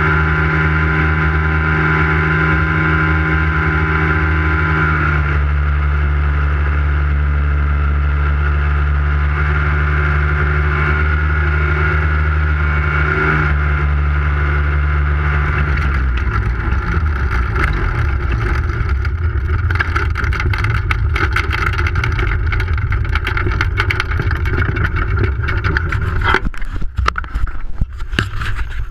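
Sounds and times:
engine and propeller running: 0:00.0 - 0:28.9
rattling: 0:14.8 - 0:28.9
wind buffeting microphone: 0:15.2 - 0:28.9.

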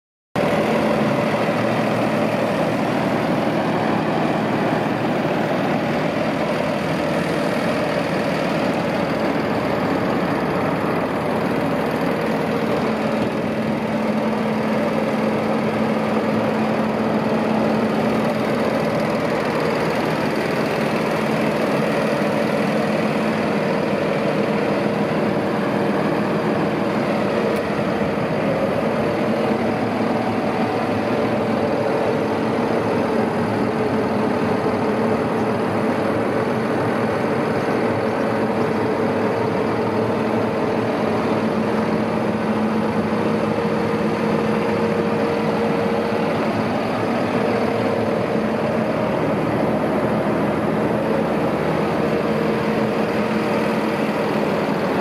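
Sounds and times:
tractor diesel engine idling: 0:00.4 - 0:55.0.

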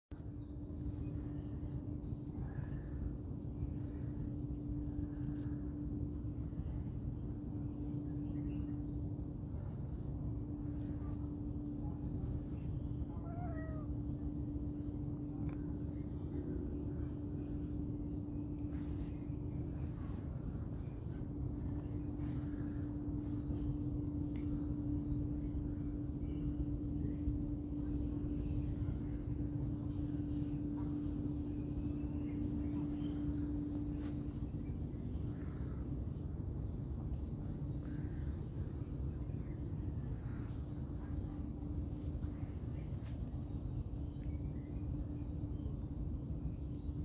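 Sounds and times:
steady low hum: 0:00.1 - 0:47.0
cat meowing: 0:13.2 - 0:14.0.

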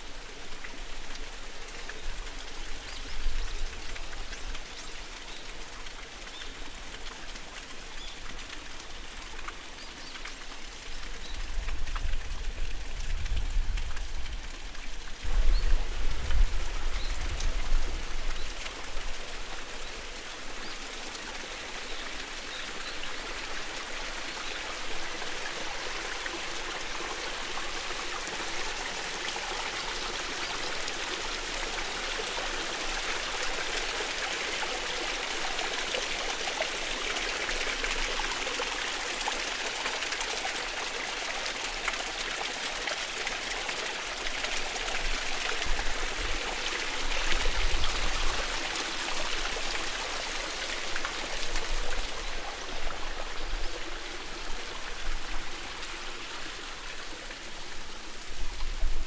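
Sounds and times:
wind rumble on microphone: 0:11.4 - 0:14.4, 0:15.3 - 0:18.5.

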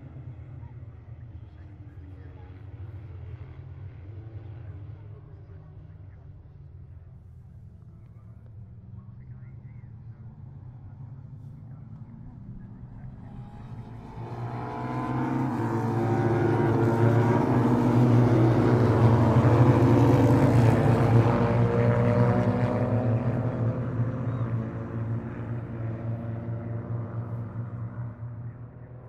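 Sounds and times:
racing motorcycle engines passing: 0:11.6 - 0:29.0.

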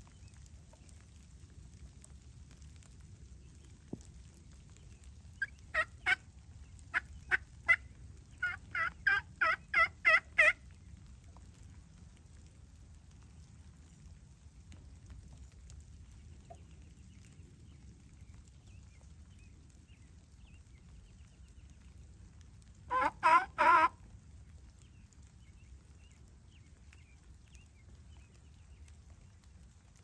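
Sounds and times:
wild turkey calling: 0:05.4 - 0:10.6, 0:22.9 - 0:24.0.

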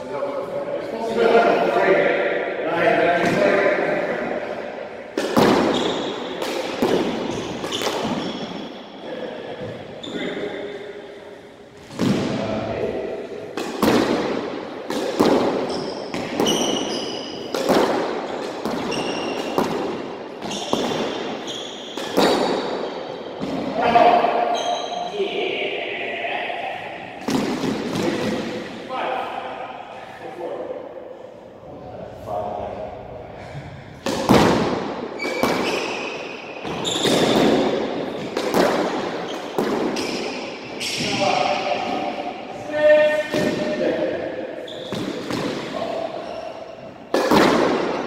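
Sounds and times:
squash ball hitting rackets and walls: 0:02.2 - 0:10.4, 0:11.8 - 0:25.1, 0:27.0 - 0:28.8, 0:33.6 - 0:48.0
sneakers squeaking on wooden floor: 0:05.6 - 0:08.8, 0:09.5 - 0:10.8, 0:15.4 - 0:23.7, 0:24.4 - 0:25.1, 0:35.1 - 0:41.3, 0:44.6 - 0:47.0.

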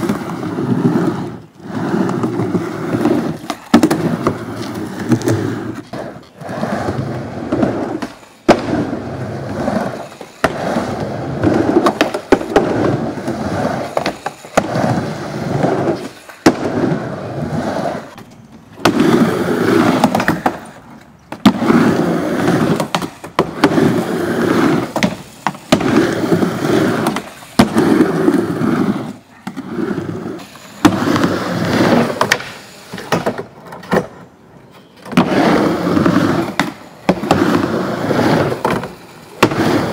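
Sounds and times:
skateboard wheels rolling on ramp: 0:00.0 - 0:39.9
skateboard clacking on wood: 0:02.0 - 0:06.4, 0:09.8 - 0:15.0, 0:18.1 - 0:29.7, 0:30.4 - 0:39.9.

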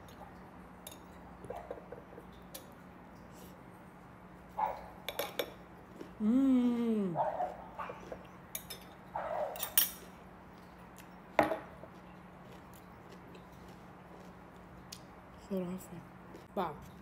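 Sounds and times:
cutlery clinking on a plate: 0:05.1 - 0:05.6, 0:08.5 - 0:10.1
person humming mmm: 0:06.2 - 0:07.2.

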